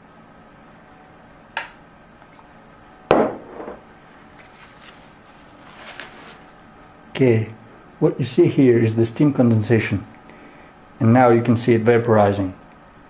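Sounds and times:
glass mug set down on table: 3.1s - 3.8s.

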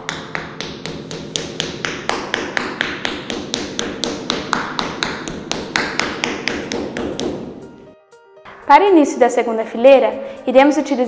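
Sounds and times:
rubber mallet tapping vinyl floor: 0.0s - 7.6s.

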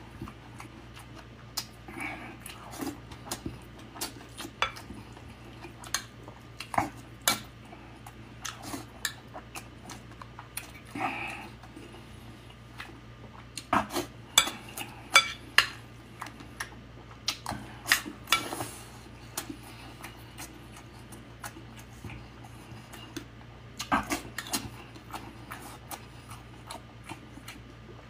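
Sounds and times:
wet mouth clicks and chewing: 0.2s - 1.8s, 16.1s - 18.4s, 22.8s - 27.8s.

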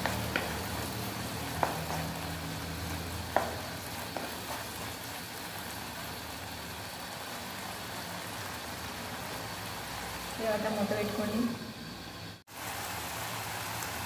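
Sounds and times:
food sizzling in a frying pan: 0.0s - 14.0s
spatula tapping on a pan: 1.5s - 2.1s, 3.3s - 4.5s.

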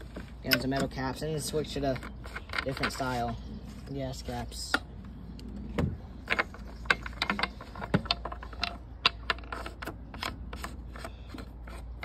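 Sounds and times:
metal clicks and knocks: 5.7s - 12.0s.

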